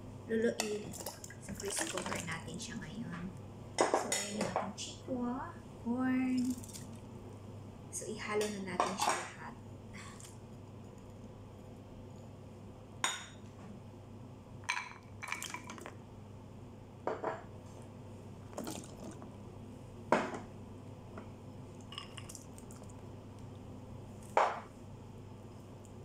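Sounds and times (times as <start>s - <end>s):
low steady hum: 0.0s - 26.0s
ceramic bowls clinking on pot: 14.7s - 15.8s.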